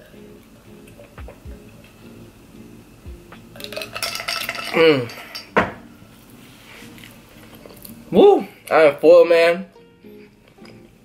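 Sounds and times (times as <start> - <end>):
glass knocking on table: 5.6 - 5.8.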